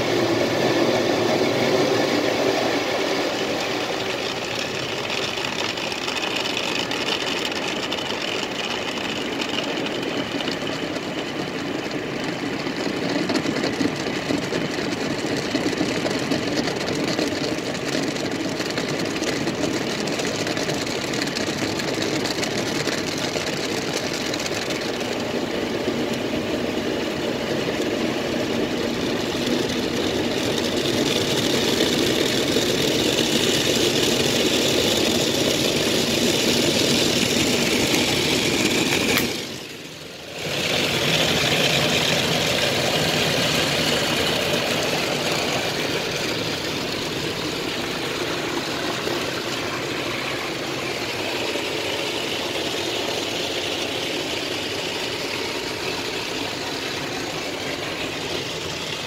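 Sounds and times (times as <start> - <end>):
water spraying over car: 28.1 - 59.0.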